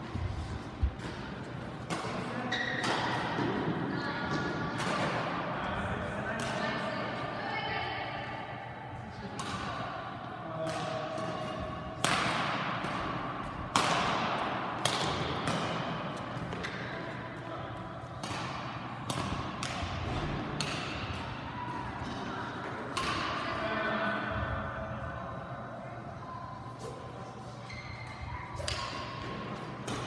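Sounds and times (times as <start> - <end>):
racket hitting shuttlecock: 0.9 - 3.6, 10.6 - 17.1, 18.1 - 23.4, 28.6 - 30.0.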